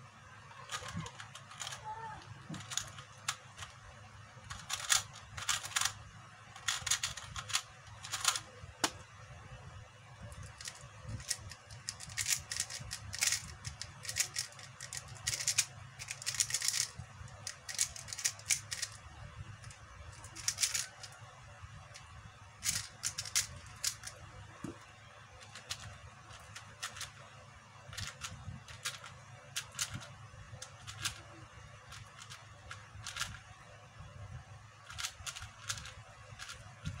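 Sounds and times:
puzzle cube clicking: 0.6 - 3.8, 4.4 - 6.0, 6.6 - 9.0, 10.4 - 19.0, 20.2 - 21.2, 22.0 - 24.8, 25.4 - 27.3, 27.9 - 33.4, 34.9 - 37.0.

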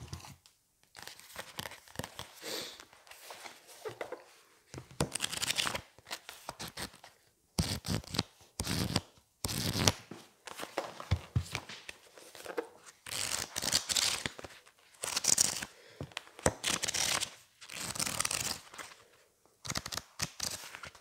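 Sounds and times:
book pages flipping: 0.0 - 21.0.

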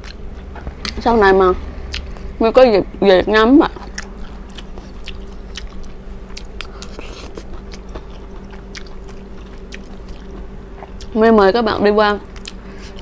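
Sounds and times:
person chewing food: 0.0 - 1.0, 1.9 - 2.4, 3.7 - 11.2, 12.2 - 13.0
faint steady hum: 0.0 - 13.0.

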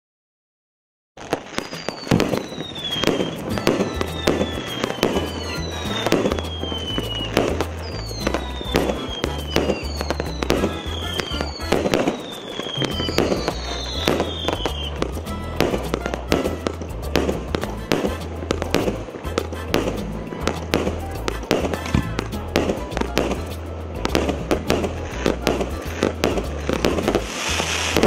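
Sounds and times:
falling firework whistle: 1.2 - 23.5, 24.1 - 28.0
fireworks bursting with sharp cracks: 1.2 - 28.0
background music with bass: 3.4 - 12.0, 12.8 - 28.0.

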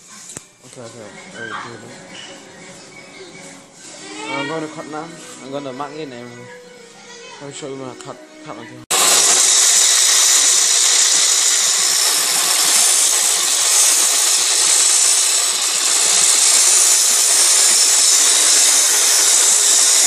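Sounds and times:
power tool cutting wood: 8.9 - 20.0.

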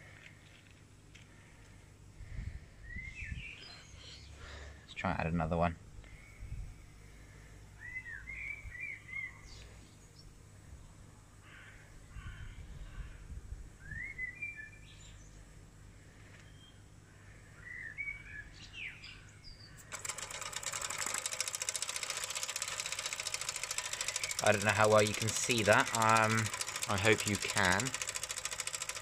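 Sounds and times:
songbirds chirping: 2.8 - 13.2, 13.9 - 19.9
steam engine chuffing: 19.9 - 29.0.

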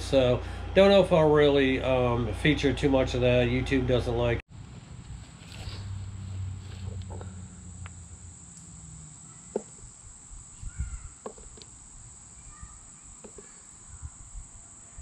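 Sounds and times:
low hum: 0.0 - 15.0
insect chorus: 4.2 - 15.0
plants snapping and rustling: 4.7 - 8.7.

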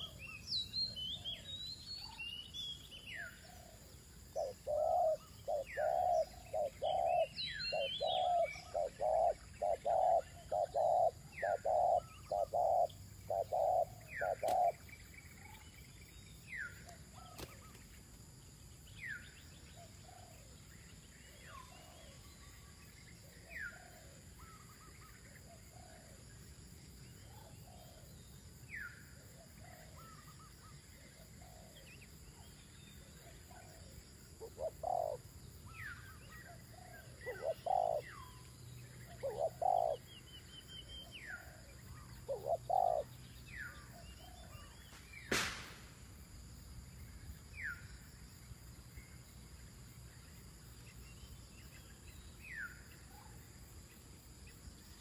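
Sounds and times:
doves cooing: 4.4 - 14.8, 34.4 - 35.2, 36.7 - 38.2, 39.1 - 40.1, 42.2 - 43.1.

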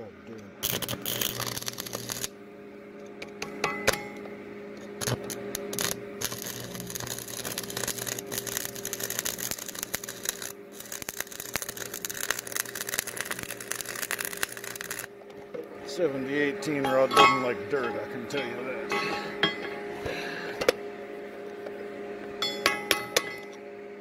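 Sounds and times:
electrical hum: 0.0 - 24.0
welding arc crackling: 0.6 - 2.4, 4.8 - 15.3.

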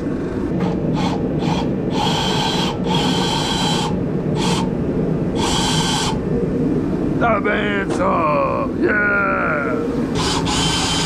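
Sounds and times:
steady low hum: 0.0 - 11.0
band saw cutting: 0.6 - 4.7, 5.3 - 6.2, 10.1 - 11.0.

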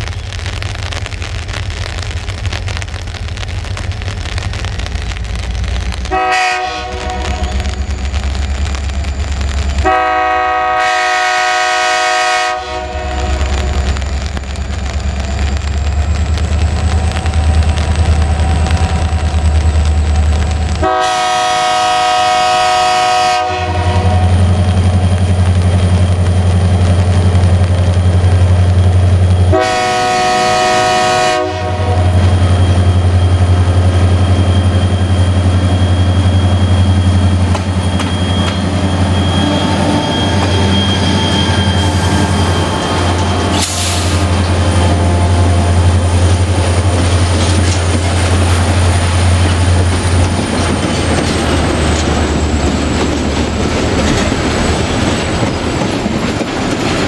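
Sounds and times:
locomotive air horn blasts: 6.0 - 7.8, 9.8 - 13.8, 20.8 - 24.4, 29.5 - 32.2, 39.3 - 46.3
diesel engine drone: 31.8 - 54.7.

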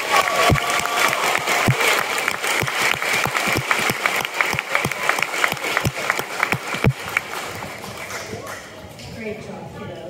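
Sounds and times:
audience applauding: 0.0 - 8.8
single hand claps: 0.2 - 8.6.

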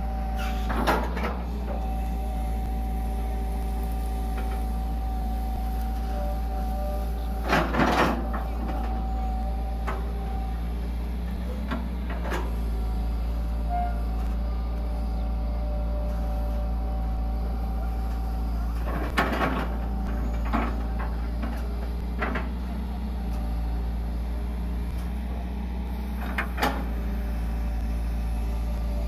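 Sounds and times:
excavator diesel engine running: 0.0 - 29.0
hydraulic whine: 0.0 - 29.0.

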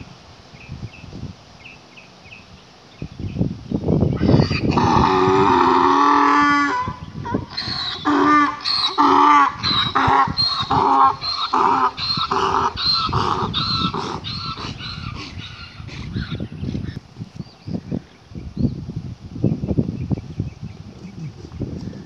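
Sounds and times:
mule braying: 4.2 - 17.0.

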